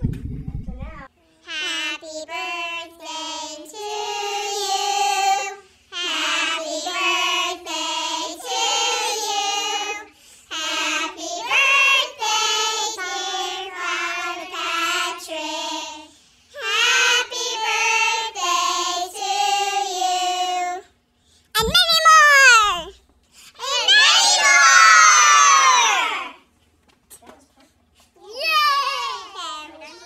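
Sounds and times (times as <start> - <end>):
children singing in chorus: 2.2 - 16.0.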